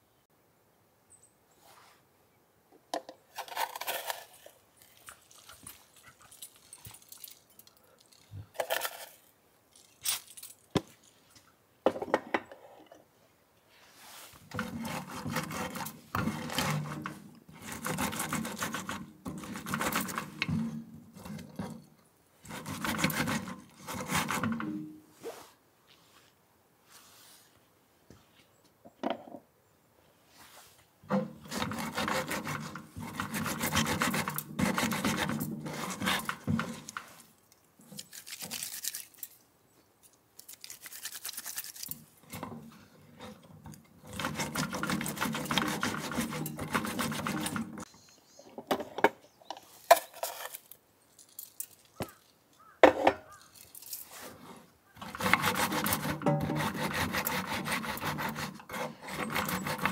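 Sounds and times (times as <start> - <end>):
pestle grinding seeds in mortar: 14.5 - 21.7, 22.5 - 24.9, 31.1 - 37.2, 40.5 - 47.9, 55.0 - 59.9.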